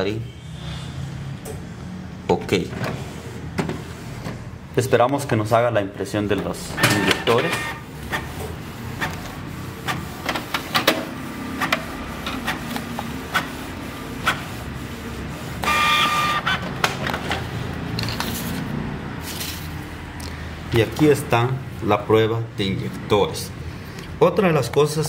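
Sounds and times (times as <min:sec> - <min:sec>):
printer mechanical clicks: 0:06.3 - 0:13.6
loud printer motor whirring: 0:06.8 - 0:18.7
inkjet printer motor hum: 0:07.1 - 0:16.6.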